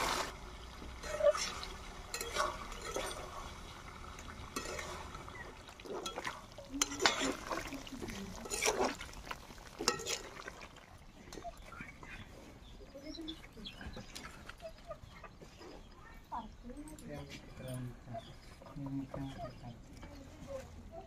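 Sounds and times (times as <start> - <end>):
spoon stirring thick curry: 0.9 - 12.6
spoon scraping and knocking pot: 1.0 - 3.5, 4.5 - 5.2, 5.9 - 7.7.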